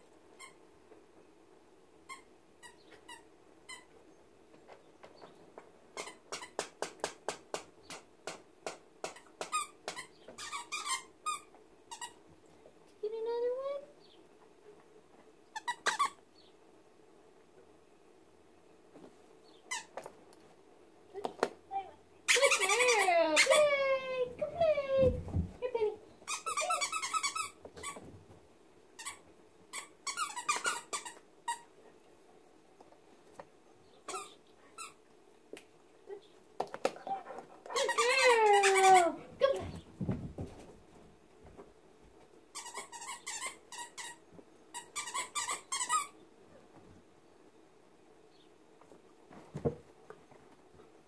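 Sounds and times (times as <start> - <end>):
dog whining: 37.0 - 39.8.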